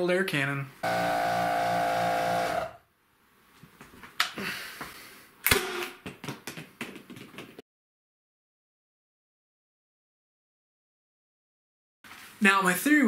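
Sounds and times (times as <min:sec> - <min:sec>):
air compressor humming: 0:00.8 - 0:02.8.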